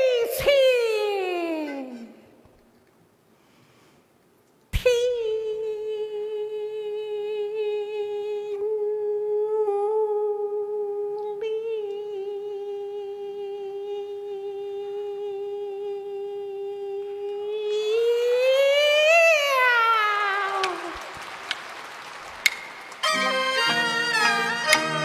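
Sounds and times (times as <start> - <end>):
woman singing a long opera note: 0.0 - 2.4, 4.8 - 21.2.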